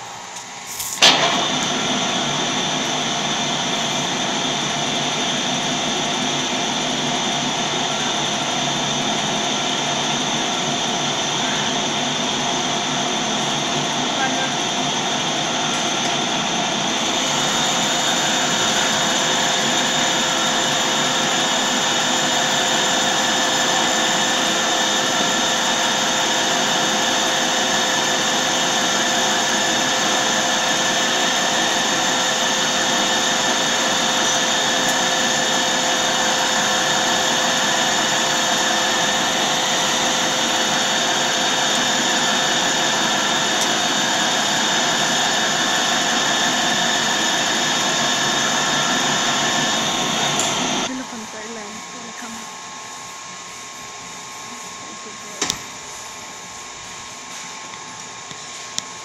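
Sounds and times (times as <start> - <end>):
lathe tool cutting hiss: 0.0 - 51.0
metal lathe whining: 0.0 - 55.8.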